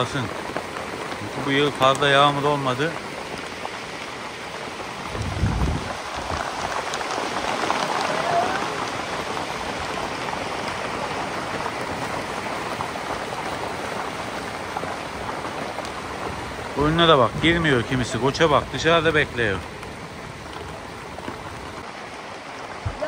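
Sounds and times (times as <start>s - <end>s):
rain pattering: 0.0s - 23.0s
low rumble: 5.0s - 6.8s.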